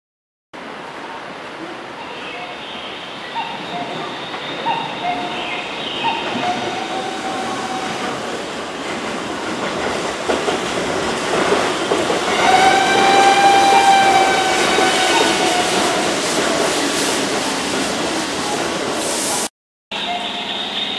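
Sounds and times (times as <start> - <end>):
train wheels clattering over joints: 6.0 - 13.9.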